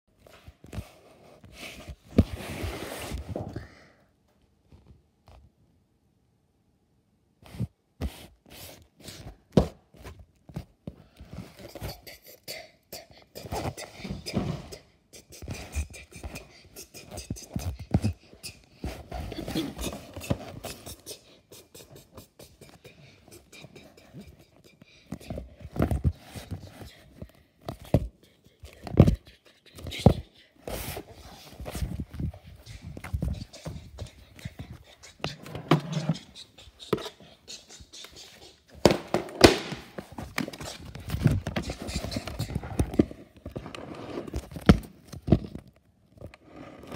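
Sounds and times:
cardboard and plastic box rubbing: 38.1 - 44.8.

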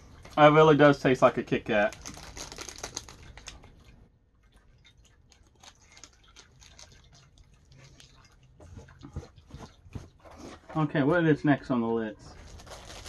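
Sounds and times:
plastic wrapper crinkling: 1.1 - 4.0, 5.1 - 8.3, 12.3 - 13.0.

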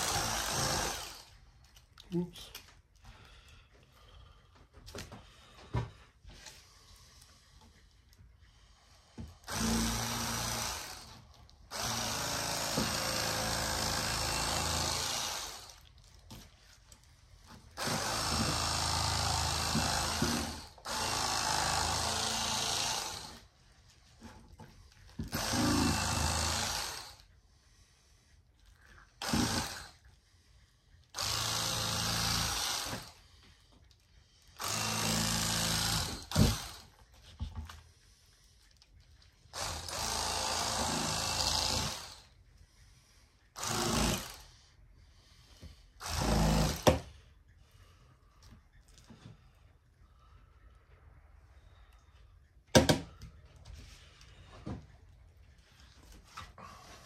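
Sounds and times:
electric fillet knife buzzing: 0.0 - 1.3, 9.5 - 15.8, 25.2 - 27.2, 31.2 - 33.2.

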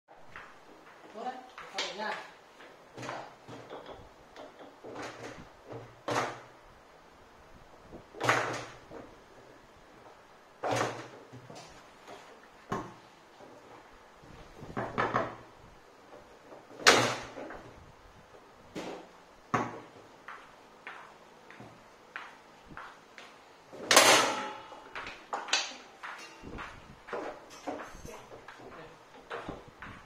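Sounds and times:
foosball knocks and clacks: 0.3 - 6.5, 8.1 - 13.6, 14.7 - 17.7.

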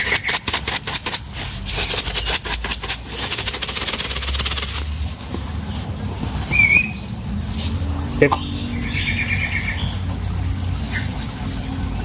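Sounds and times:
feed pellets pouring and rattling: 0.0 - 4.8.

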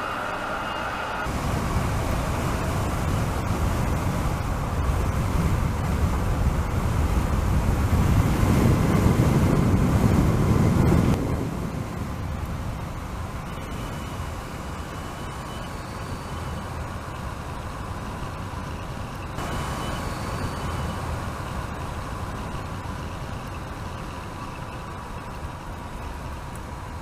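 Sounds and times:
wind rushing: 0.0 - 15.0
tyres rumbling on road: 0.0 - 27.0.

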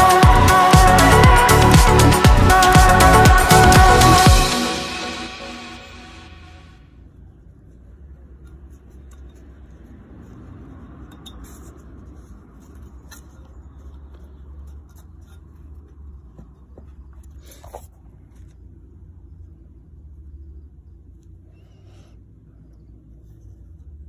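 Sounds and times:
low steady rumble: 0.0 - 24.0
fingers scraping rubber seal: 7.2 - 18.5.

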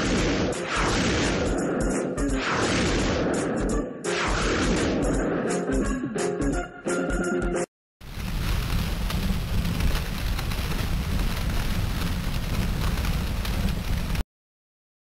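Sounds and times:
rushing noise with deep rumble: 8.0 - 14.2.

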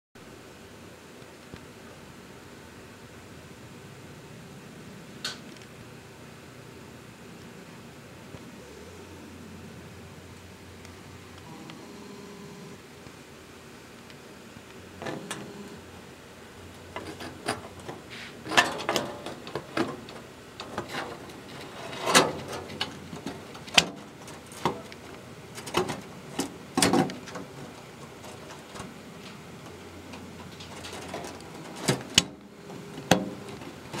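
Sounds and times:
window blinds rattling: 16.8 - 32.2.

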